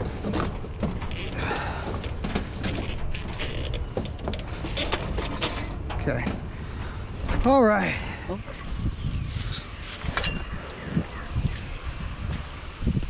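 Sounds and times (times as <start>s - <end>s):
junk knocking and clattering: 0.0s - 8.2s
scraping rustle: 0.0s - 8.2s.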